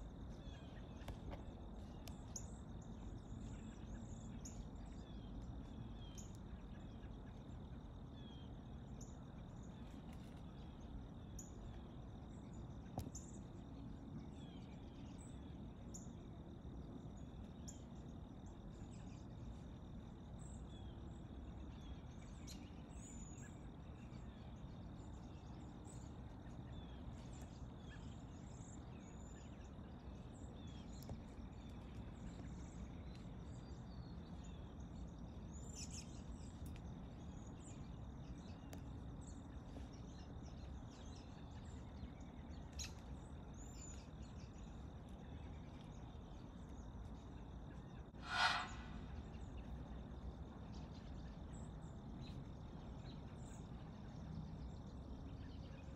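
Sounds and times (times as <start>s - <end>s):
small birds chirping: 0.0s - 55.9s
high insect tone: 43.6s - 49.6s
steady low rumble: 48.0s - 49.6s.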